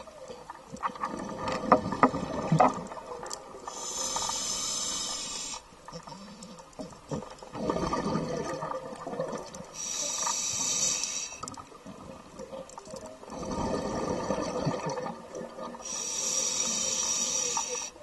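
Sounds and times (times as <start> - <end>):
hissing regulator inhale: 3.7 - 6.4, 9.7 - 11.6, 15.8 - 18.0
bubbling exhaled air: 13.3 - 17.3.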